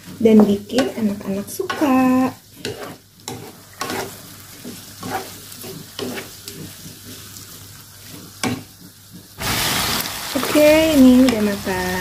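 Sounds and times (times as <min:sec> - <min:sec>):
spatula scraping and knocking pan: 0:00.0 - 0:07.4, 0:08.0 - 0:09.4
stir-fry sizzling in a wok: 0:00.0 - 0:12.0.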